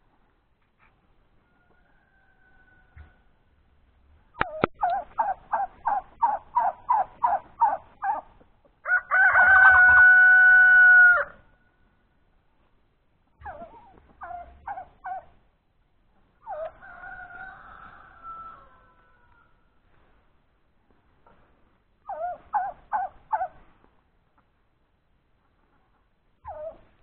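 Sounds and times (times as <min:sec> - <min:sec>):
rooster crowing: 0:01.4 - 0:03.3, 0:08.8 - 0:11.4, 0:16.6 - 0:19.6.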